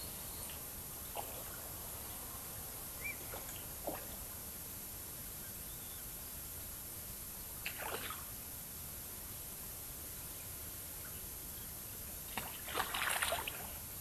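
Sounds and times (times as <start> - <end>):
faint steady hiss: 0.0 - 14.0
fish splashing at water surface: 12.3 - 13.7.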